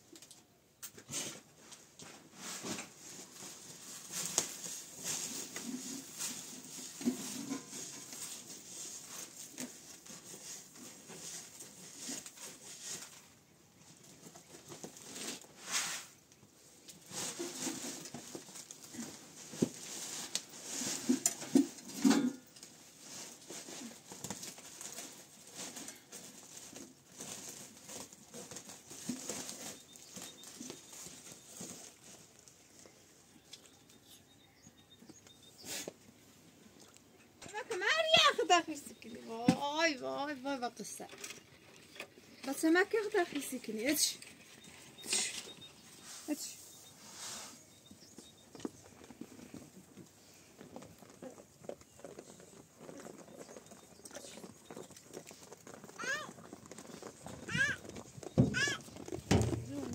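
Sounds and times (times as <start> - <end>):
rustling and clicking of handling: 0.0 - 59.9.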